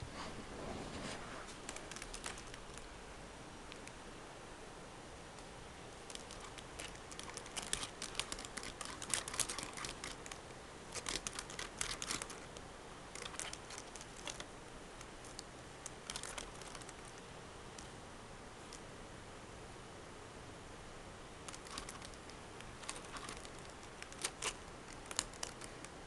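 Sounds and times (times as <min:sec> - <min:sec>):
kitten scuffling on carpet: 0:00.1 - 0:01.9.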